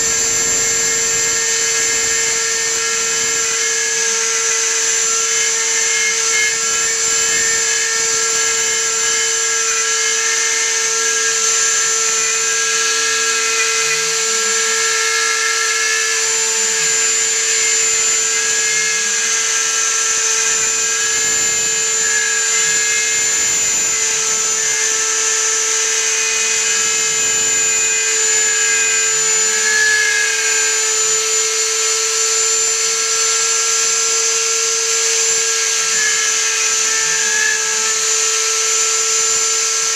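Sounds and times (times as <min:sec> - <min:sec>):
low gliding motor tones: 0:00.0 - 0:20.1
spindle high whine: 0:00.0 - 0:39.9.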